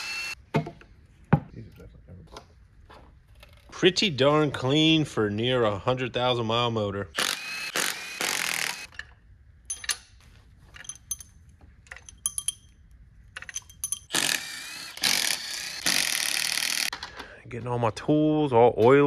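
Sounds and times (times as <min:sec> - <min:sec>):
light metallic clinks: 0:09.7 - 0:14.1.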